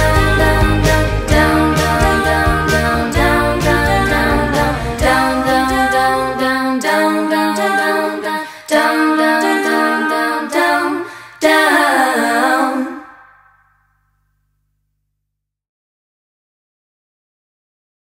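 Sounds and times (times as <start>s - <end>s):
women singing a cappella harmony: 0.0s - 13.3s.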